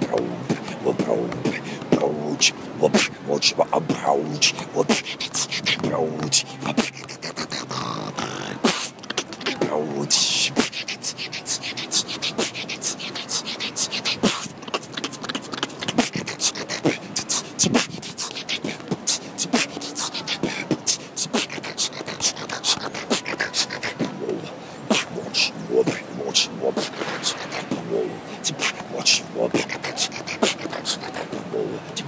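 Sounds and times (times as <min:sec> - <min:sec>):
human beatboxing: 0:00.0 - 0:32.0.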